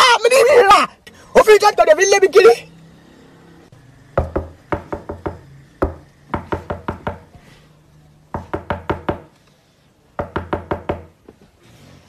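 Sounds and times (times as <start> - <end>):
knuckles knocking on car window: 4.2 - 7.2, 8.4 - 9.3, 10.2 - 11.1.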